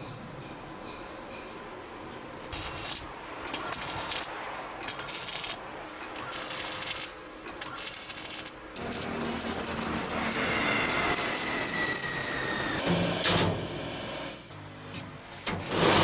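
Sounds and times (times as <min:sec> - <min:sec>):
arc welding hiss: 0:02.5 - 0:12.8.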